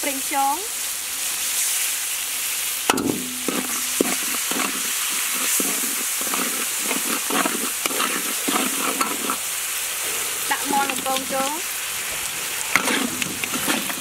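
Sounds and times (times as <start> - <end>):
sauce sizzling in a wok: 0.0 - 14.0
spatula scraping a wok: 3.2 - 14.0.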